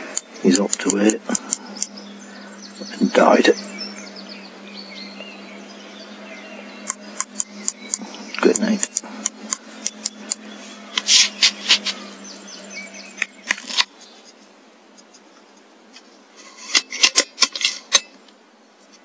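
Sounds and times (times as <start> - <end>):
handling rubs and clicks: 6.8 - 12.0, 13.2 - 18.2.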